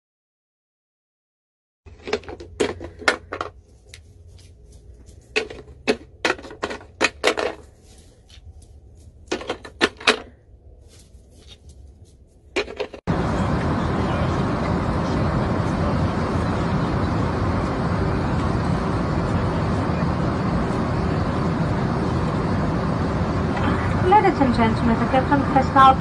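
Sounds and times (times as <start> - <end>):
low steady hum: 1.9 - 26.0
loud rushing noise: 13.1 - 26.0.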